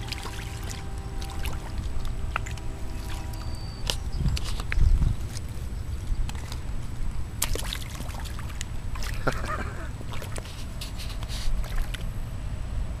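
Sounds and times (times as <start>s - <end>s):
dog splashing in water: 0.0s - 5.5s, 7.4s - 12.1s
steady low rumble: 0.0s - 13.0s.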